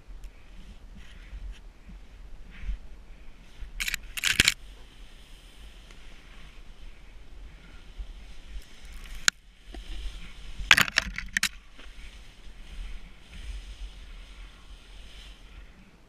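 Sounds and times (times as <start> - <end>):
wind rumble on helmet camera: 0.0 - 16.0
snowboard scraping over snow: 4.6 - 6.8, 7.5 - 10.7, 11.6 - 16.0.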